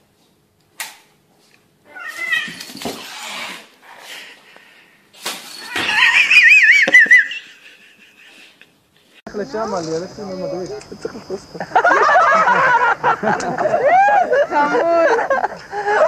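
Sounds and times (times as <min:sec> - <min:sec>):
cat yowling: 0:01.9 - 0:03.7, 0:05.6 - 0:07.4
cat hissing: 0:01.9 - 0:04.4.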